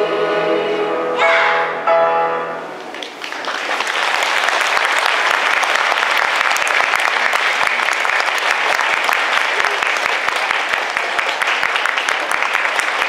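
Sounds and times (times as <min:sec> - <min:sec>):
large audience applauding: 0:02.8 - 0:13.0.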